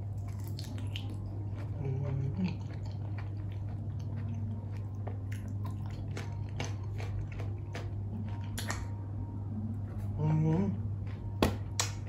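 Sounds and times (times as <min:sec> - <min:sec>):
mouth chewing wet clicks: 0:00.0 - 0:08.9
steady low hum: 0:00.0 - 0:12.0.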